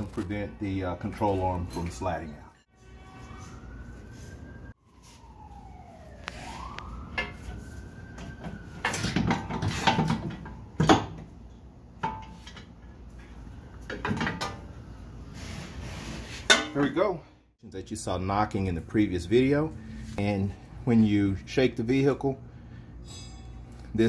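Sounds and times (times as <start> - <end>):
faint siren wailing: 0.0 - 10.8, 18.1 - 22.7
metal clanks and knocks: 8.8 - 11.3, 13.8 - 14.7.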